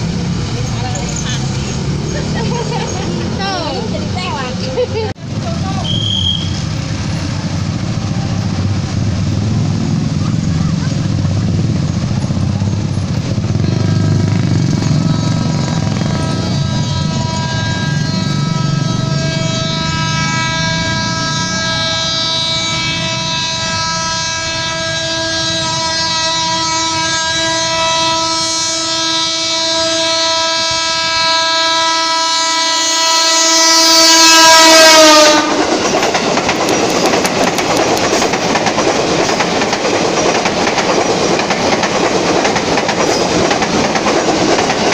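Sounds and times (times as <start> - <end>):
train rumble and wheel clatter: 0.0 - 44.9
train horn: 5.8 - 6.8, 13.4 - 35.9.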